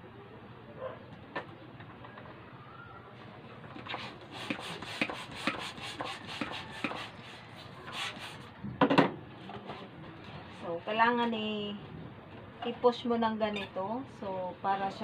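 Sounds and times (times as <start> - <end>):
hand balloon pump strokes: 3.8 - 8.5.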